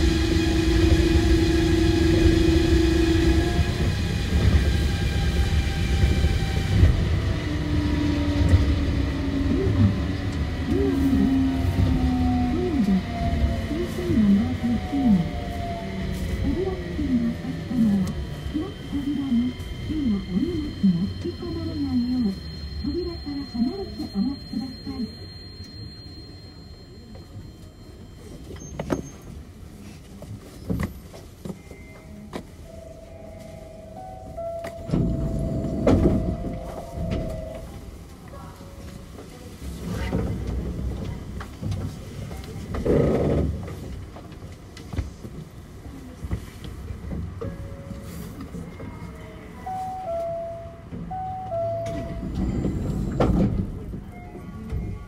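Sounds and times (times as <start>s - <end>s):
train motor whine: 0.0s - 4.8s
monorail train rumble: 0.0s - 55.0s.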